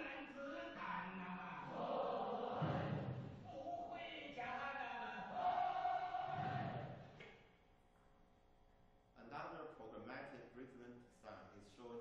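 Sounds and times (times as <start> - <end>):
group chanting work song over loudspeakers: 0.6 - 3.5, 5.0 - 7.2.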